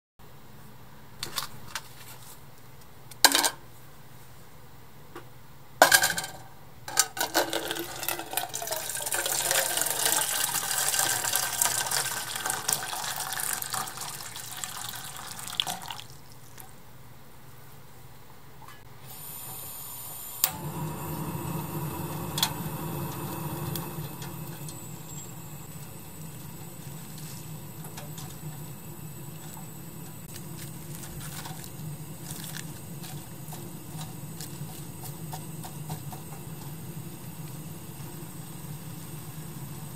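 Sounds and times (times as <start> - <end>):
water pouring into pot: 7.4 - 16.6
burner ignition click: 19.0 - 26.8
gas burner rushing: 19.0 - 39.9.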